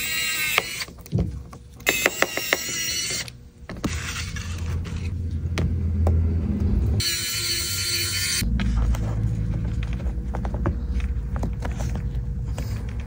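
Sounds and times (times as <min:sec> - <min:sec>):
low hum: 0:02.8 - 0:13.0.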